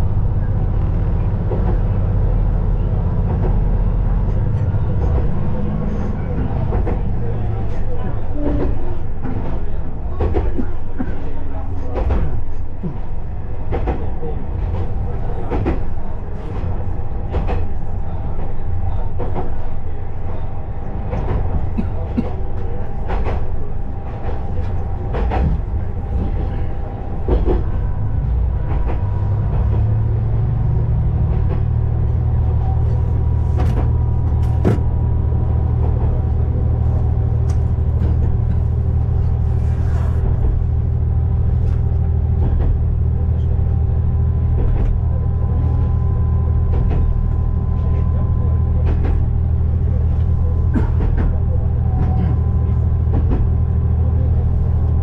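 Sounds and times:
diesel engine drone: 0:13.3 - 0:55.0.

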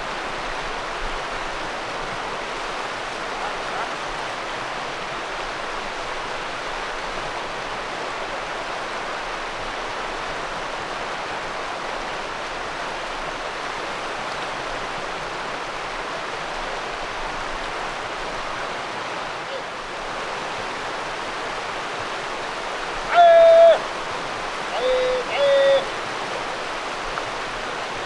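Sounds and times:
river water over stones: 0:00.0 - 0:28.0.

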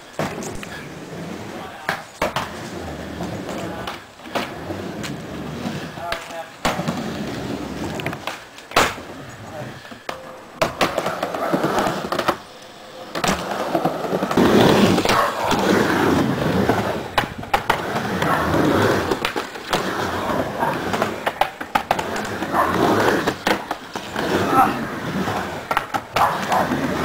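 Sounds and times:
skateboard wheels rolling on ramp: 0:00.0 - 0:27.0
skateboard clacking on ramp: 0:20.7 - 0:27.0.

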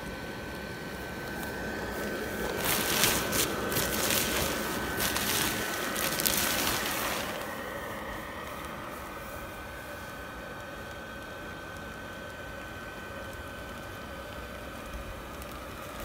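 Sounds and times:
blower fan humming: 0:00.0 - 0:16.0
nylon fabric crinkling and rustling: 0:01.2 - 0:10.2, 0:14.7 - 0:16.0.

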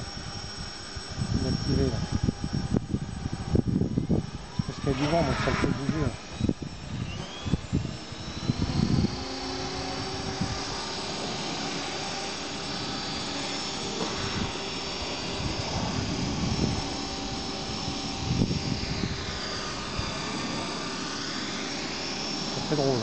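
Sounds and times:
drone motors buzzing: 0:00.0 - 0:23.0
wind thumps on microphone: 0:15.3 - 0:19.2.

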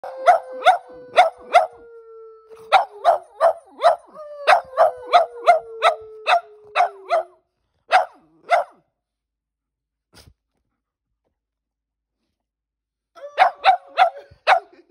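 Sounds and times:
dog howling: 0:00.0 - 0:07.3
dogs barking: 0:00.2 - 0:01.8, 0:02.7 - 0:08.8, 0:13.4 - 0:14.8.

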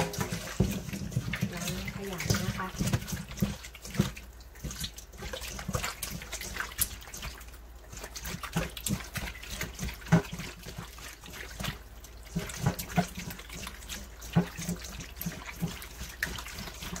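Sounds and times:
wet squelching of raw meat: 0:00.0 - 0:17.0.

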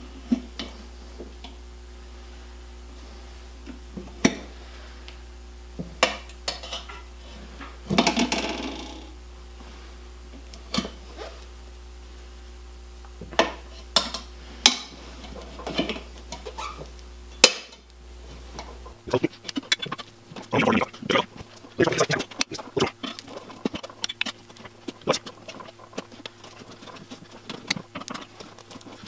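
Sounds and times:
tyre iron scraping: 0:19.0 - 0:29.0.

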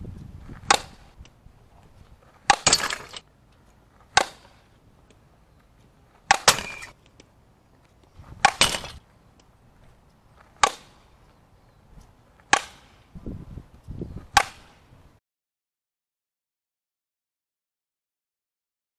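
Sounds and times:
bat cracking against ball: 0:00.5 - 0:01.3, 0:02.4 - 0:03.3, 0:04.0 - 0:04.7, 0:06.2 - 0:07.3, 0:08.3 - 0:09.1, 0:10.4 - 0:11.1, 0:12.4 - 0:13.1, 0:14.3 - 0:14.9.

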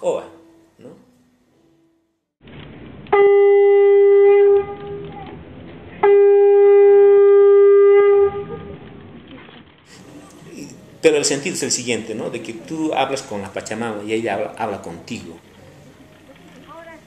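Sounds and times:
horn long notes: 0:03.1 - 0:05.0, 0:06.0 - 0:08.7.

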